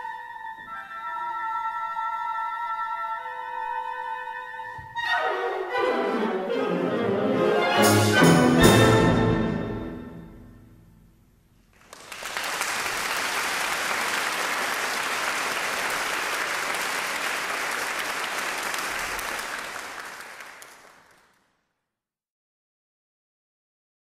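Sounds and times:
brass band chord: 0:05.4 - 0:11.0
audience applauding: 0:11.7 - 0:21.4.

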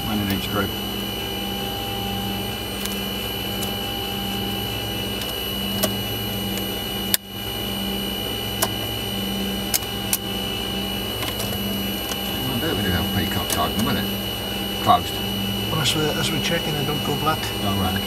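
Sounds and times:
cockpit electrical hum: 0:00.0 - 0:18.0
thin high whine: 0:00.0 - 0:18.0
cockpit switches clicking: 0:02.8 - 0:04.5, 0:05.1 - 0:07.3, 0:08.5 - 0:08.9, 0:09.5 - 0:10.4, 0:11.2 - 0:12.3, 0:13.0 - 0:14.0.

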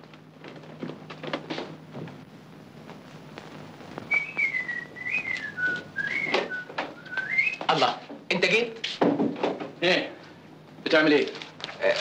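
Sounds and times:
person whistling a tune: 0:04.1 - 0:07.6.

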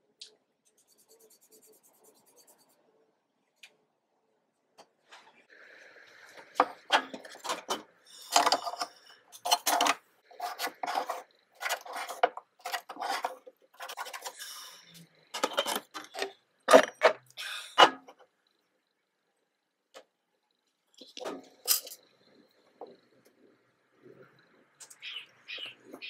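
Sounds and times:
pencil scratching on wood: 0:00.7 - 0:02.8, 0:09.4 - 0:14.6.

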